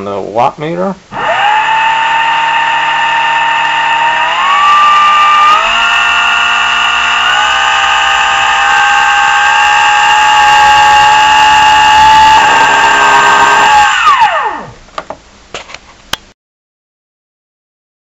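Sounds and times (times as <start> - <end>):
electric motor whine: 1.1 - 14.8.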